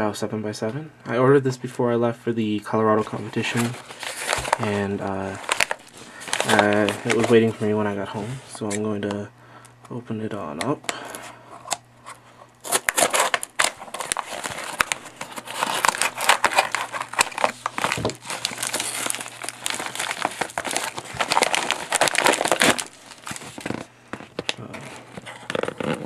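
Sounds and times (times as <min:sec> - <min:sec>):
envelope crinkling: 0:03.0 - 0:07.9, 0:12.6 - 0:26.0
scissors cutting paper mailer: 0:03.5 - 0:07.5, 0:12.6 - 0:23.8.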